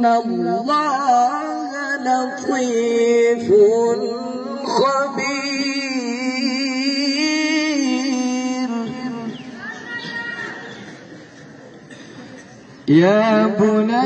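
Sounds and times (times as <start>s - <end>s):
man reciting melodically: 0.0s - 9.6s, 12.8s - 14.0s.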